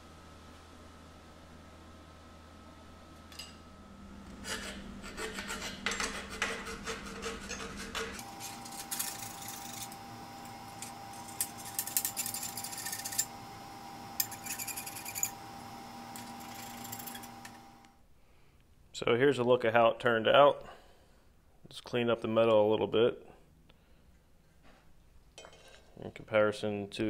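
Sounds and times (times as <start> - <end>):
hand file rasping on metal: 4.4 - 8.6.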